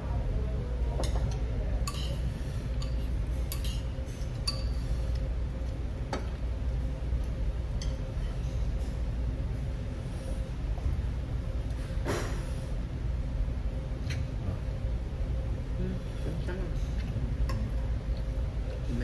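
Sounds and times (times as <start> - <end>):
steady low hum: 0.0 - 19.0
utensils clinking against ceramic bowls: 1.0 - 4.8.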